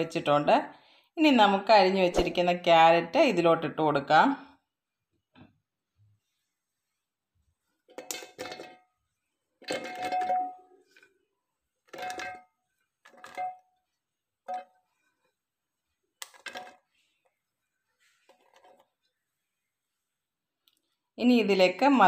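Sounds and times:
metal jar ringing: 0:09.6 - 0:10.8.

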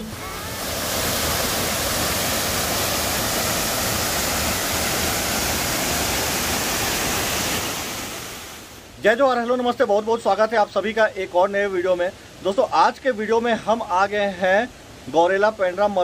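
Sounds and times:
waterfall rushing: 0:00.0 - 0:09.0.

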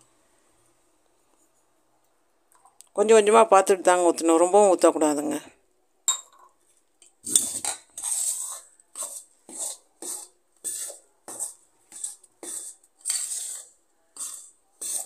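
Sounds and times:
metal spoon scraping steel bowl: 0:07.2 - 0:15.0.

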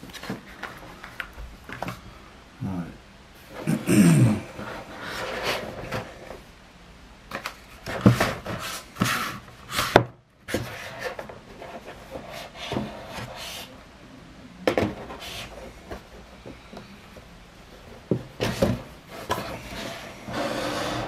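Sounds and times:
cardboard rubbing and scraping: 0:04.5 - 0:06.4, 0:07.8 - 0:13.8, 0:18.4 - 0:21.0.

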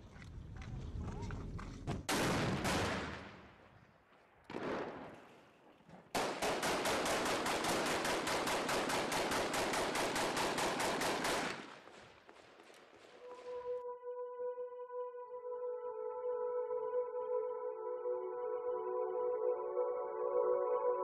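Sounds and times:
grenade blast: 0:02.1 - 0:03.6
rapid automatic gunfire: 0:06.2 - 0:13.1.

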